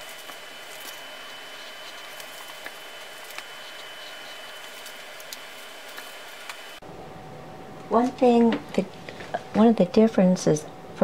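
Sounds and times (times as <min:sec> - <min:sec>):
faint high whine: 0:00.0 - 0:08.0.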